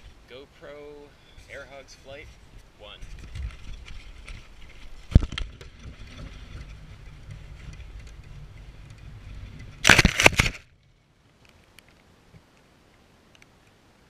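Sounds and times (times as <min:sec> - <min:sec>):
small electric motor and propeller: 0:03.1 - 0:10.7
plane crashing into grass: 0:09.8 - 0:10.7.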